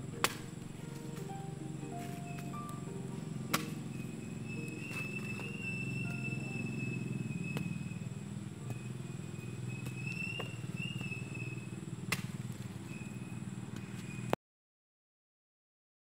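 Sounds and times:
thin high wavering tone: 0:00.0 - 0:08.1
small engine droning: 0:00.0 - 0:14.4.

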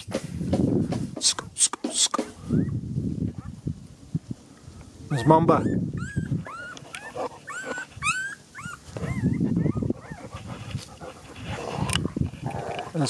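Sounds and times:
dog whining: 0:02.4 - 0:02.8, 0:05.1 - 0:10.6.

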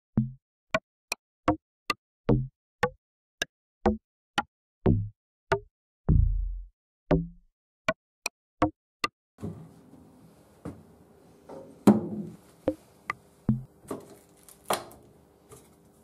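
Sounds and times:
plastic bottles set down on wood: 0:11.5 - 0:12.4, 0:13.8 - 0:15.8.

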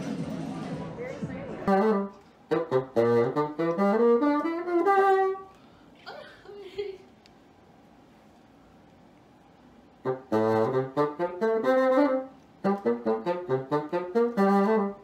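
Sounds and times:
bassoon playing: 0:01.4 - 0:05.6, 0:10.0 - 0:15.0.

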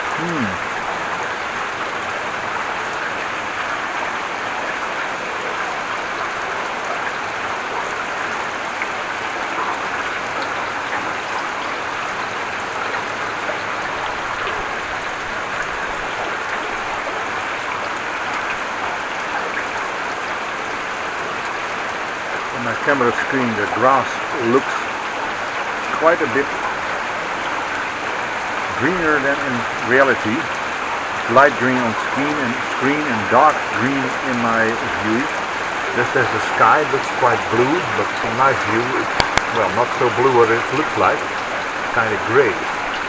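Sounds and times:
heavy rain falling: 0:00.0 - 0:43.0.

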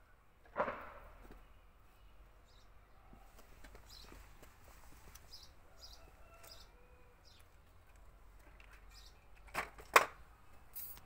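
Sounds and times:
sharp knocks: 0:00.5 - 0:01.4.

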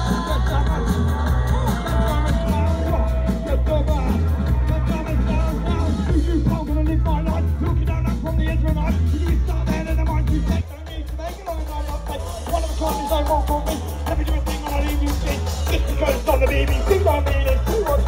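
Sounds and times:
drum beat: 0:00.0 - 0:18.0
live band playing: 0:00.0 - 0:18.0
person singing: 0:00.0 - 0:18.0.

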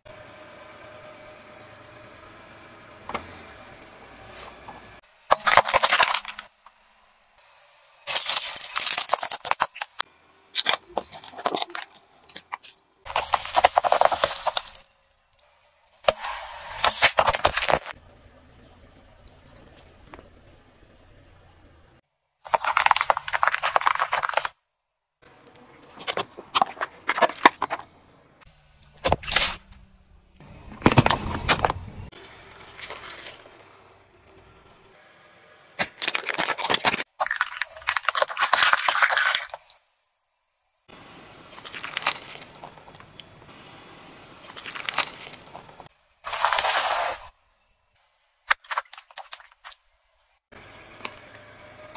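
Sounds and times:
peppers crunching under tyre: 0:05.3 - 0:06.6, 0:08.0 - 0:15.3, 0:16.0 - 0:18.2, 0:22.4 - 0:24.6, 0:25.3 - 0:28.2, 0:28.8 - 0:33.7, 0:35.8 - 0:39.8, 0:41.4 - 0:43.5, 0:44.4 - 0:47.4, 0:50.6 - 0:51.9
tyre crushing objects: 0:13.1 - 0:14.9, 0:22.5 - 0:24.5, 0:30.4 - 0:32.1.

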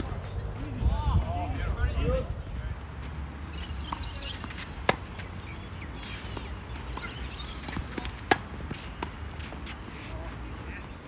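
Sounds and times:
tennis racquet hitting ball: 0:03.6 - 0:05.3, 0:06.0 - 0:09.8.

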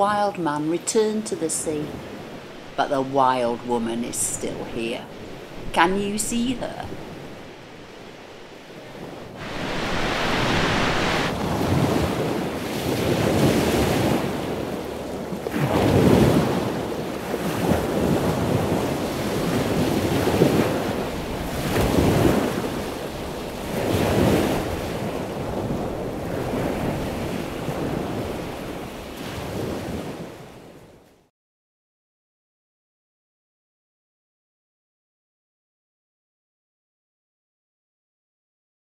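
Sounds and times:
wind on microphone: 0:01.7 - 0:30.5
sea waves breaking on shore: 0:01.7 - 0:31.1.

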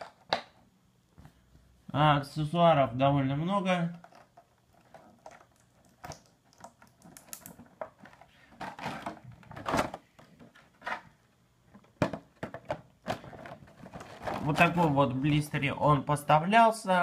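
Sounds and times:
plastic packaging crackling: 0:12.4 - 0:15.5.

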